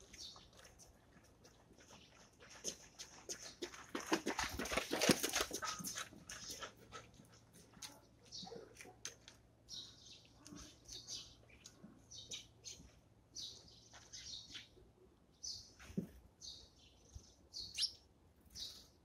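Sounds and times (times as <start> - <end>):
sparrows chirping: 0.0 - 1.0, 7.8 - 19.0.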